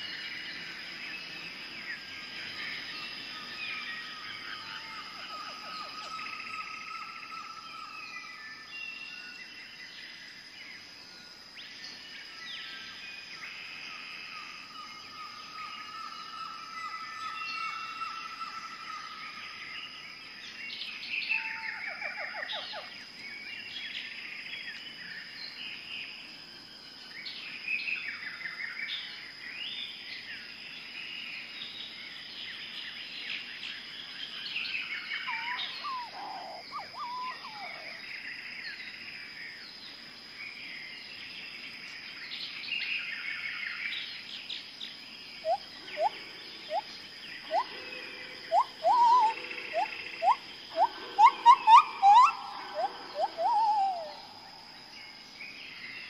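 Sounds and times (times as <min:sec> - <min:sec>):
birds chirping and trilling: 0:00.0 - 0:10.9, 0:11.7 - 0:25.9, 0:27.1 - 0:56.0
short rising bird calls: 0:35.2 - 0:38.0, 0:48.5 - 0:54.4.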